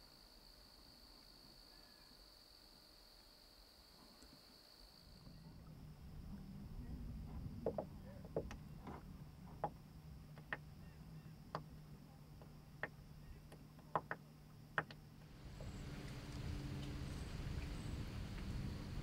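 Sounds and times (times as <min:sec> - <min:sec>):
low steady hum: 0:05.0 - 0:19.0
waves slapping boat hull: 0:15.2 - 0:19.0.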